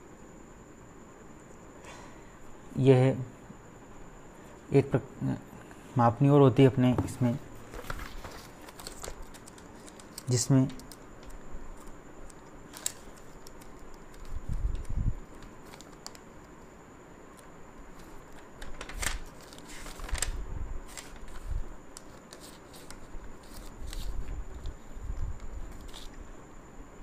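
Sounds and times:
faint steady high whine: 0:00.0 - 0:27.0
paper rustling: 0:07.1 - 0:12.0, 0:12.7 - 0:16.2, 0:17.9 - 0:26.2.

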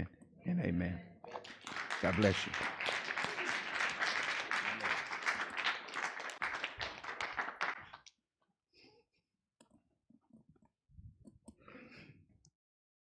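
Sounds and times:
congregation applauding: 0:01.3 - 0:08.1.

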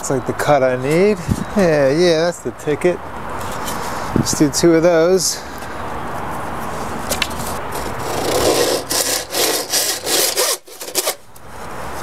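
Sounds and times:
handsaw cutting wood: 0:07.3 - 0:11.2.

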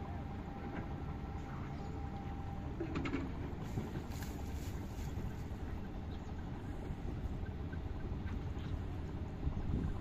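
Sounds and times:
wind buffeting microphone: 0:02.8 - 0:10.0.

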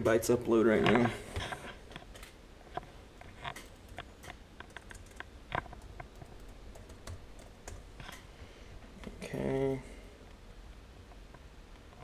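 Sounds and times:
laptop keyboard typing: 0:03.4 - 0:08.2.

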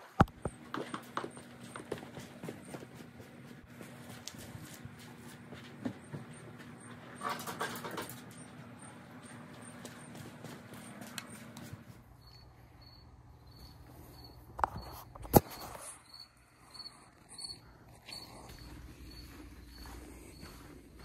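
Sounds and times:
crickets chirping: 0:05.8 - 0:21.0.

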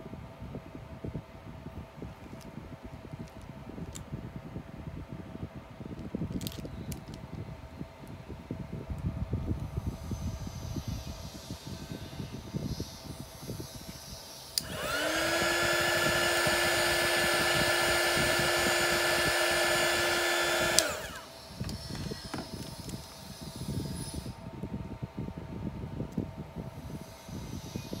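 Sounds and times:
heat gun fan hum and whine: 0:00.0 - 0:28.0
heat gun switch click: 0:14.6 - 0:21.2.

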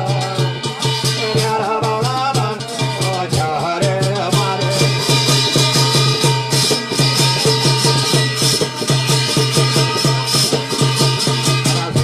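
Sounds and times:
fast drumbeat: 0:00.0 - 0:12.0
jingling percussion: 0:00.0 - 0:12.0.

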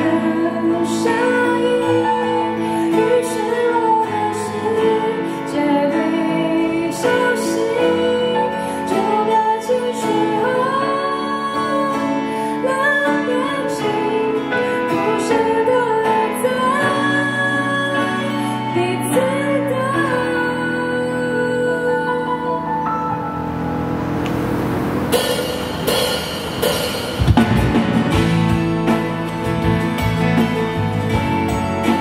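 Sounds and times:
woman singing pop ballad: 0:00.0 - 0:23.0
acoustic guitar: 0:00.0 - 0:32.0.

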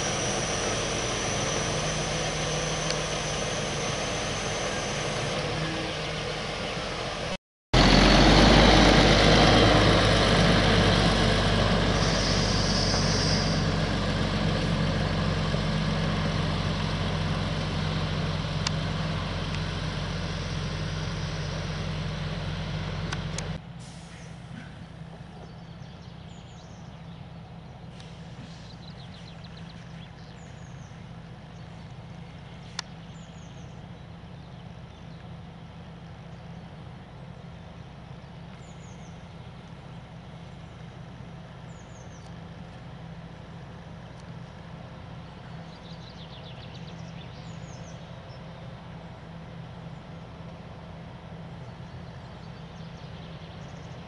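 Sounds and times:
birds chirping: 0:00.0 - 0:08.2, 0:11.7 - 0:15.4, 0:24.1 - 0:42.8, 0:43.6 - 0:50.3, 0:51.3 - 0:54.0
diesel truck engine: 0:00.0 - 0:54.0
steady engine hum: 0:00.0 - 0:54.0
tractor engine running: 0:00.0 - 0:54.0
air-brake hiss: 0:11.9 - 0:13.8, 0:23.8 - 0:24.7, 0:27.9 - 0:28.9.

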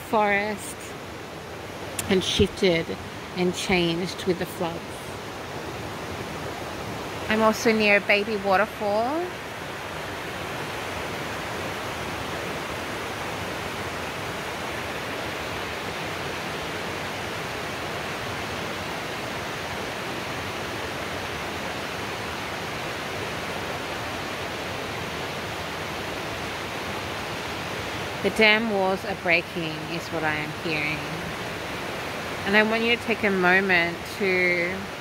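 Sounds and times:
waterfall rushing hiss: 0:00.0 - 0:35.0.

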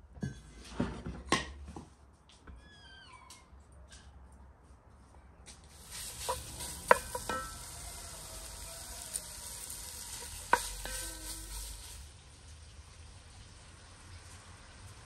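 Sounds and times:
fat sizzling in a pan: 0:05.7 - 0:15.0
wooden spoon knocking on pan: 0:06.0 - 0:07.8, 0:10.2 - 0:11.6.

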